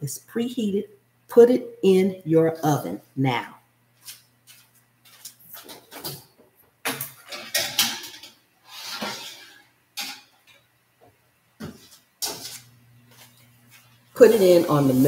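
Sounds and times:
metal baking sheet clattering: 5.5 - 10.6, 11.6 - 12.7.

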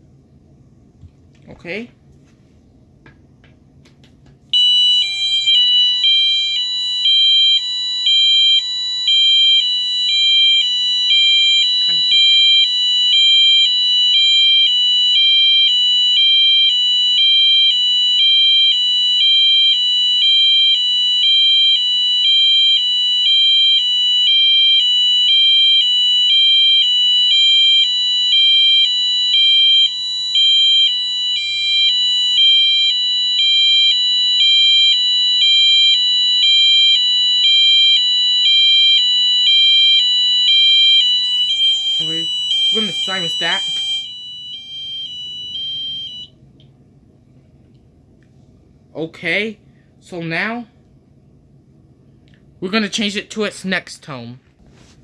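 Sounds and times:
fire alarm horn high-low tone: 4.5 - 46.4.

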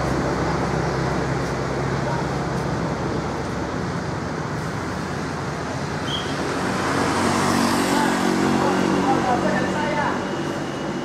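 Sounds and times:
diesel bus engine running: 0.0 - 11.0.

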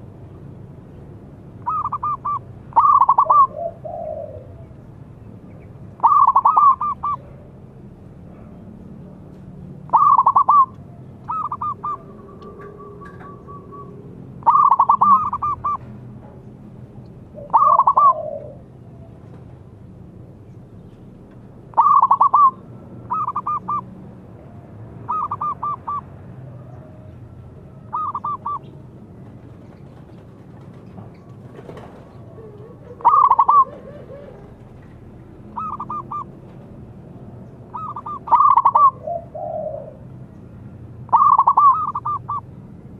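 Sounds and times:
dove cooing: 1.6 - 4.8, 6.0 - 7.6, 9.9 - 15.9, 17.3 - 19.2, 21.7 - 23.9, 25.1 - 27.1, 27.8 - 28.7, 31.2 - 34.8, 35.5 - 36.3, 37.7 - 40.1, 41.1 - 42.5.

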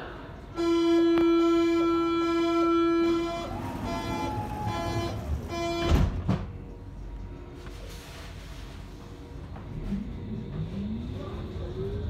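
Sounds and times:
loud steady warning tone: 0.4 - 7.5
sliding doors shutting: 3.4 - 6.5.

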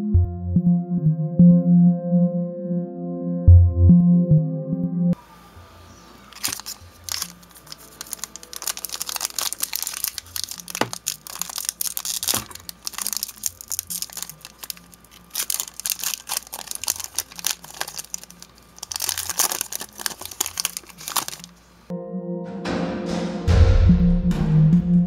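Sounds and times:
foil wrapper tearing and crinkling: 6.3 - 21.6.

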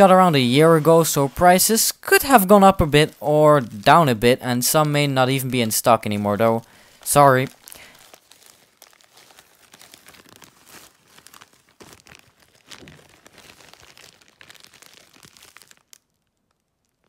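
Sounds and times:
plastic bags crinkling: 2.2 - 17.0.

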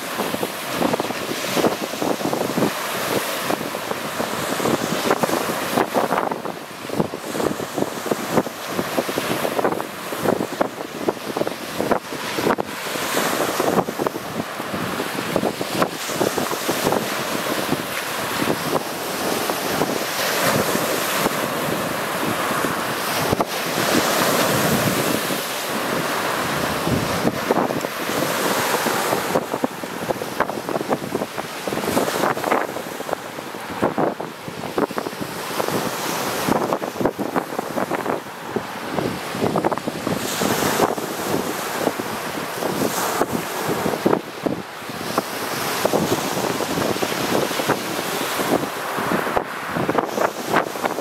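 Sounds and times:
surf breaking on pebbly shore: 0.0 - 51.0
wind buffeting microphone: 0.0 - 51.0.

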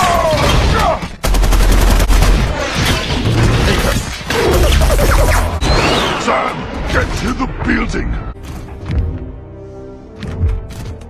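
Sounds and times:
rapid automatic gunfire: 1.2 - 2.6.

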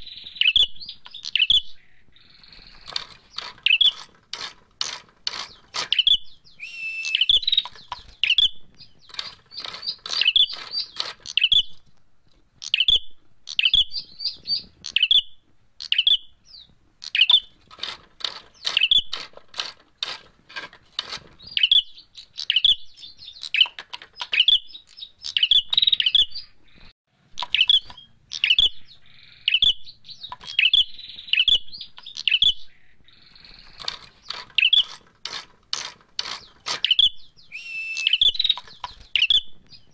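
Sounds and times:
bird calling sharp notes: 0.0 - 11.8, 27.4 - 39.9.

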